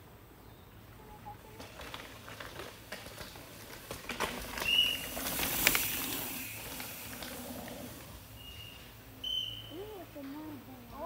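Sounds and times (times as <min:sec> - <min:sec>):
bike tyres crunching over rocks: 0:01.1 - 0:09.7
short high whistle: 0:08.4 - 0:09.7.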